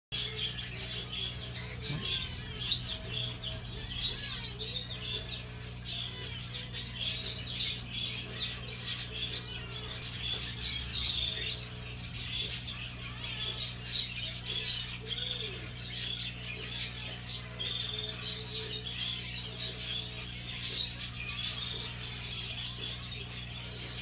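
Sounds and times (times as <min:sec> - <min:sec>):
small birds chirping: 0:00.1 - 0:24.0
steady low hum: 0:00.2 - 0:24.0.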